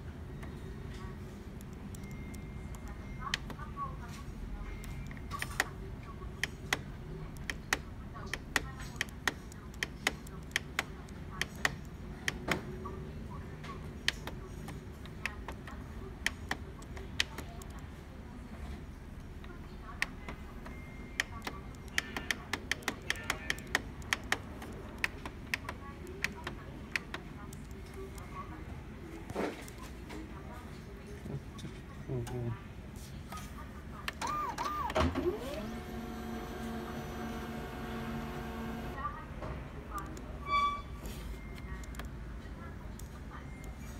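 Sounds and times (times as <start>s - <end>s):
printer drive motor humming: 34.2s - 39.0s
printer motor whirring: 34.2s - 39.0s.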